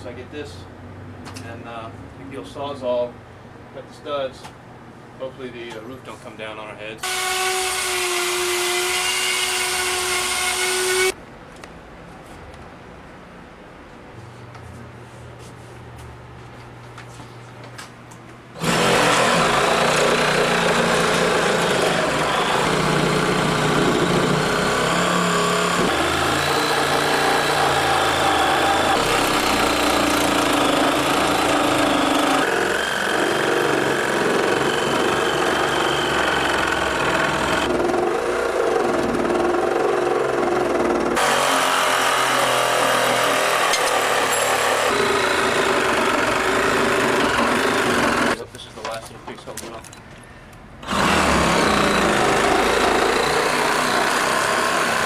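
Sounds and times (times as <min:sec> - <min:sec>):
reciprocating saw cutting wood: 0:07.0 - 0:11.2, 0:18.6 - 0:48.4, 0:50.8 - 0:55.0.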